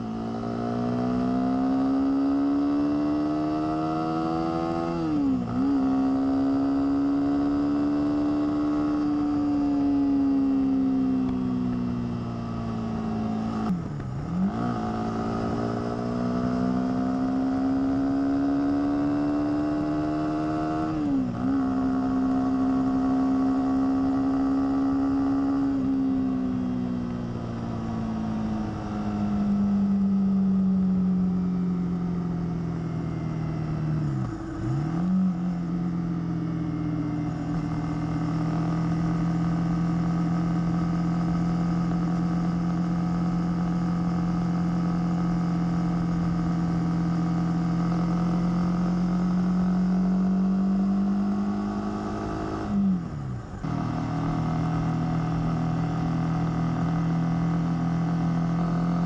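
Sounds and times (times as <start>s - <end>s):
motorcycle engine cruising: 0.0s - 59.0s.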